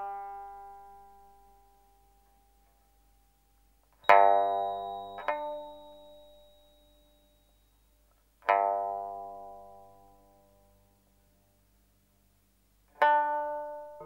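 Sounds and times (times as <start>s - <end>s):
plucked string chords: 4.0s - 6.6s.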